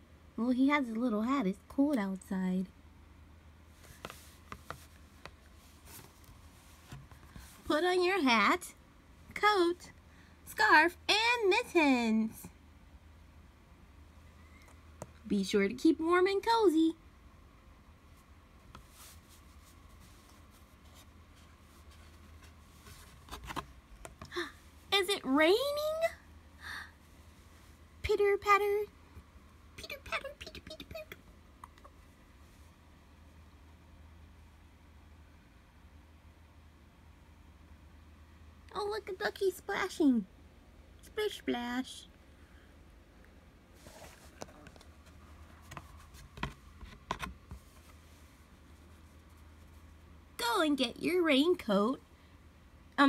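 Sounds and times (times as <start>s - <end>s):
low steady hum: 0.0s - 53.0s
fingers rubbing book pages: 3.8s - 7.7s, 18.7s - 23.7s, 43.8s - 50.0s
page turning: 21.8s - 23.7s.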